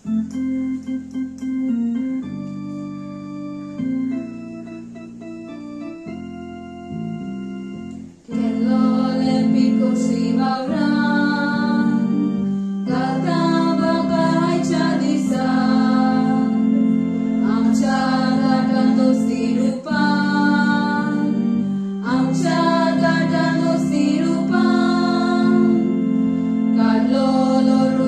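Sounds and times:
keyboard accompaniment: 0.0s - 28.0s
girls' choir singing: 8.3s - 28.0s.

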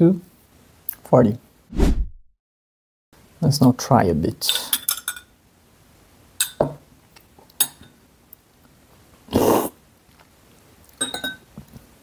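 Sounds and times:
metal spoon clinking on glass: 4.8s - 5.3s, 11.0s - 11.5s
person slurping: 9.3s - 9.8s.

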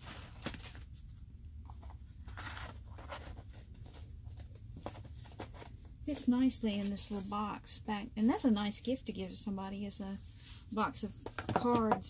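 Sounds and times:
paper cards rustling: 0.0s - 7.3s.

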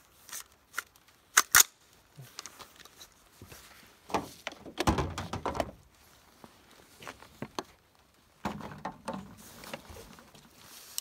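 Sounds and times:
rustling and bumping handling noise: 2.3s - 11.0s.

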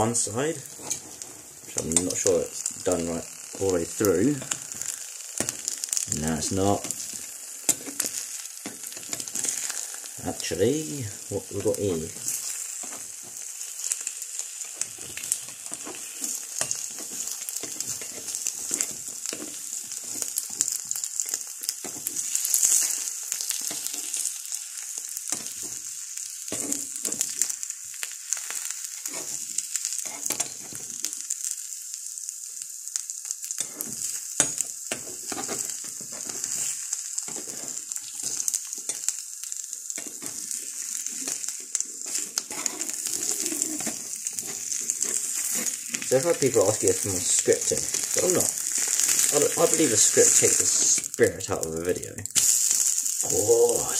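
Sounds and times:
eggs sizzling in a frying pan: 0.0s - 53.9s.

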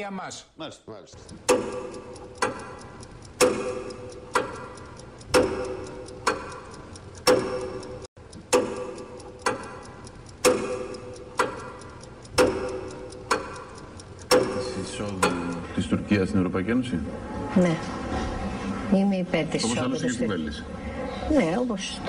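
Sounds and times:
clock ticking: 1.1s - 16.9s.

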